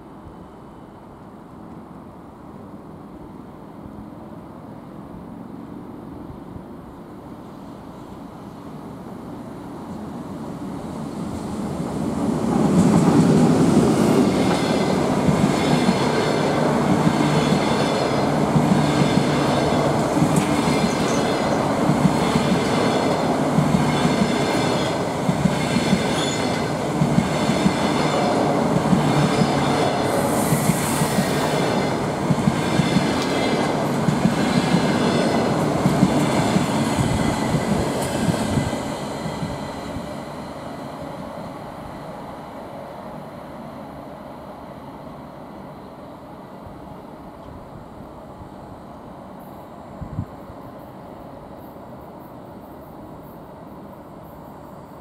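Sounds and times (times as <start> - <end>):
train wheels rumbling on rails: 9.8 - 43.3.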